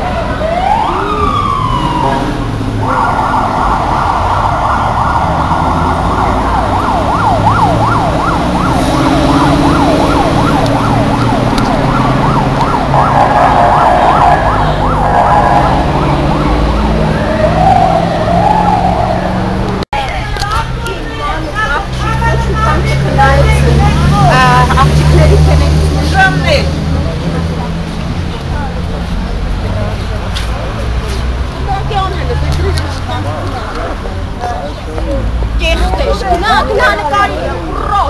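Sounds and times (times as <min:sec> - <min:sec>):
police siren whooping and yelping: 0:00.0 - 0:19.7
traffic rumbling: 0:00.0 - 0:38.0.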